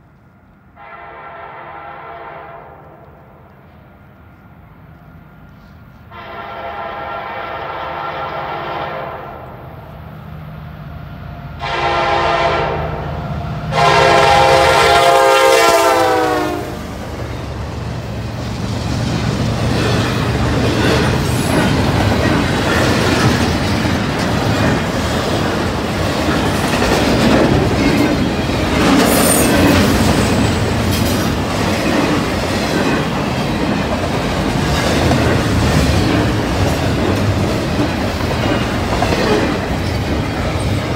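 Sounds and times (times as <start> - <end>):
train wheels rumbling: 0.0 - 40.9
locomotive horn blasts: 0.8 - 3.1, 6.1 - 9.4, 11.6 - 13.1, 13.7 - 16.9
wheels clacking over rail joints: 17.2 - 40.9.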